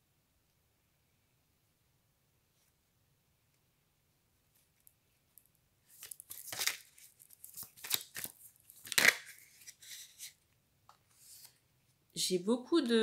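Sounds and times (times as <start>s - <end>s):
playing cards being shuffled: 5.9s - 10.4s.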